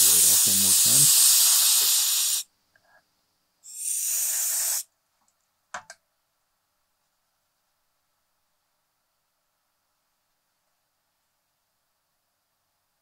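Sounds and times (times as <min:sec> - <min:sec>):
aerosol can spraying: 0:00.0 - 0:02.5, 0:03.6 - 0:04.9.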